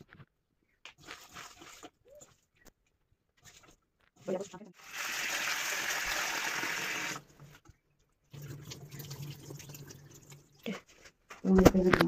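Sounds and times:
tap water pouring into bowl: 0:08.3 - 0:10.5.

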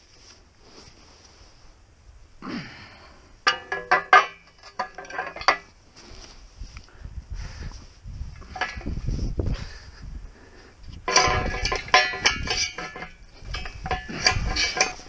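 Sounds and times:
steel forks clanking: 0:03.5 - 0:05.7, 0:11.0 - 0:15.0.

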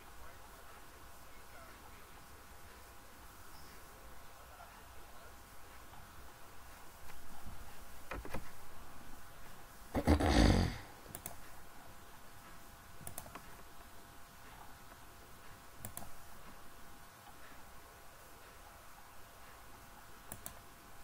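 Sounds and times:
computer mouse clicks: 0:11.1 - 0:11.5, 0:13.0 - 0:13.6, 0:15.8 - 0:16.2, 0:20.3 - 0:20.7.

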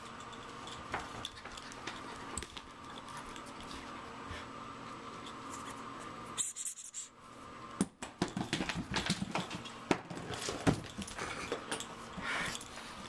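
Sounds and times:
puppy claws clicking on wood floor: 0:00.0 - 0:03.9, 0:08.0 - 0:11.9.

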